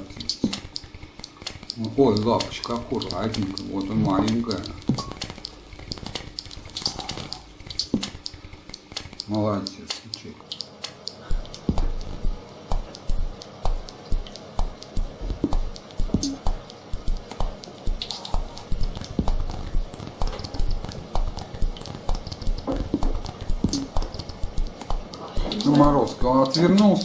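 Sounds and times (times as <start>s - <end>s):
sharp clicks: 0.0s - 27.0s
music with a steady beat: 11.3s - 26.5s.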